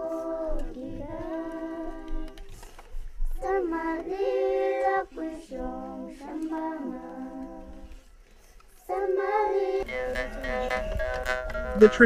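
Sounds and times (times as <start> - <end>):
woman singing unaccompanied: 0.0 - 2.6.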